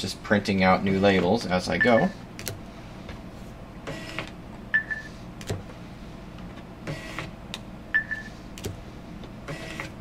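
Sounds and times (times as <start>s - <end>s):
label printer printing: 3.8s - 5.7s, 6.8s - 7.4s, 8.0s - 10.0s.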